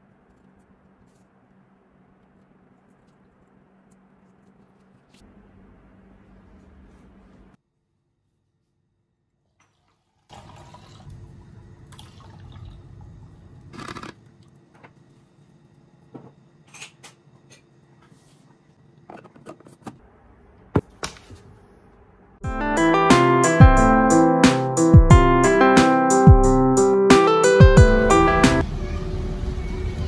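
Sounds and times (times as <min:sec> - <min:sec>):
guitar music: 0:22.4 - 0:28.6.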